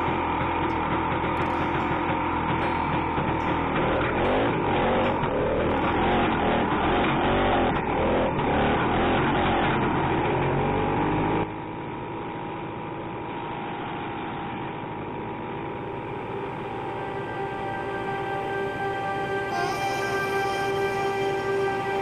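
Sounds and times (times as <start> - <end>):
background music with held notes: 0.0 - 9.5, 15.6 - 22.0
snowmobile engine running: 0.0 - 11.9, 13.3 - 22.0.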